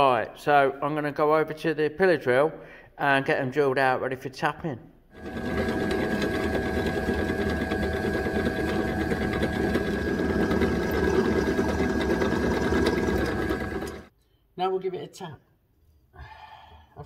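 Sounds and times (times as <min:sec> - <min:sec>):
pillar drill humming: 0:05.2 - 0:14.1.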